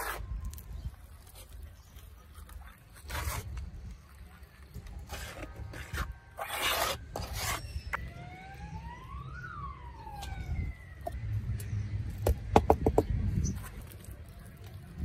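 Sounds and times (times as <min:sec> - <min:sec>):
trowel scraping wet concrete: 0:00.0 - 0:08.1
siren wailing: 0:07.4 - 0:11.4.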